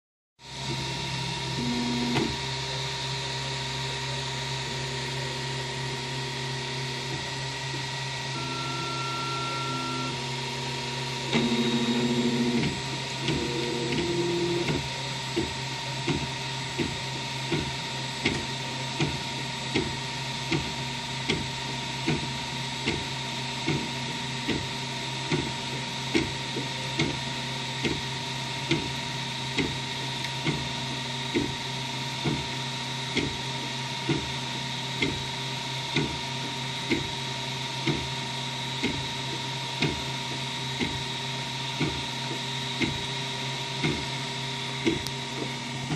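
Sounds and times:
stepper motor whines: 0:00.4 - 0:45.9
print head moving back and forth: 0:11.3 - 0:19.9, 0:44.8 - 0:45.9
fan hum: 0:38.8 - 0:45.9.

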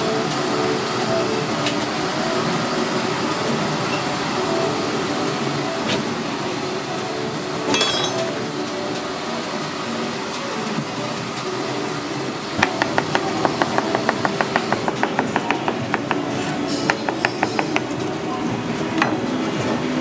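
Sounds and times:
knife chopping on plastic board: 0:12.6 - 0:16.3.

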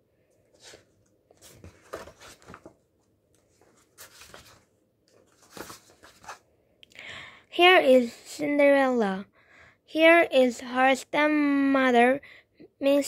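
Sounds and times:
paper rustling: 0:00.5 - 0:06.4.

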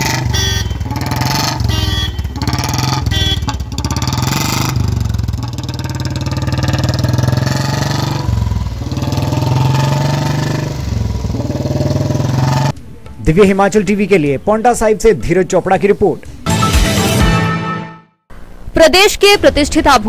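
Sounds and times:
single-cylinder motorcycle engine revving: 0:00.0 - 0:12.8.

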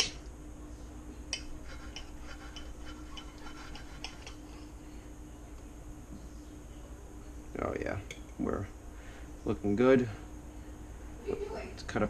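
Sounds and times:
knife scraping on plate: 0:01.4 - 0:04.6.

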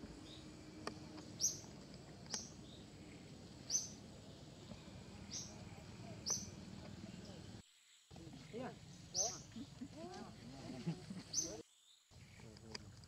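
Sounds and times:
small bird chirping: 0:00.0 - 0:10.4, 0:11.2 - 0:12.9
low outdoor background: 0:00.0 - 0:13.0.

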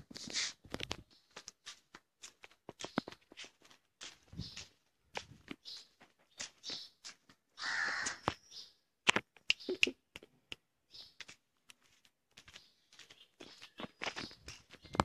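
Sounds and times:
harsh animal call: 0:07.6 - 0:08.2.

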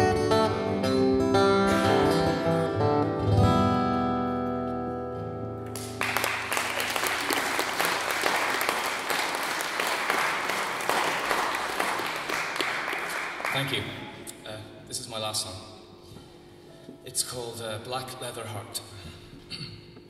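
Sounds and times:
acoustic guitar strumming: 0:00.0 - 0:07.0
audience applause: 0:05.7 - 0:14.1.

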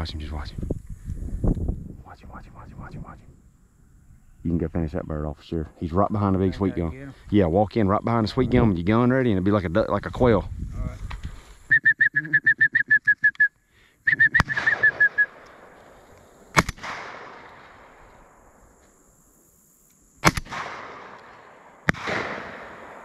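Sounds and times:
shotgun shots echoing: 0:14.4 - 0:18.0, 0:20.2 - 0:23.0.

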